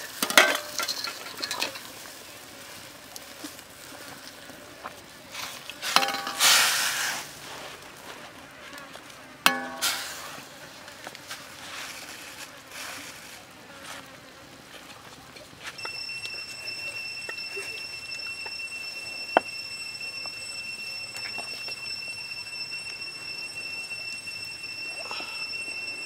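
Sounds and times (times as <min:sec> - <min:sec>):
broth crackling and hissing: 0:00.0 - 0:26.0
high-pitched insect drone: 0:15.8 - 0:26.0.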